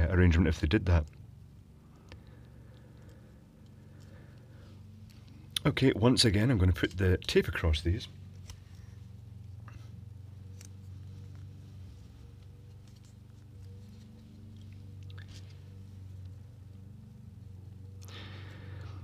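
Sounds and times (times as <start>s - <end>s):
steady low hum: 0.0s - 19.0s
light clicks and rustles: 8.2s - 17.0s.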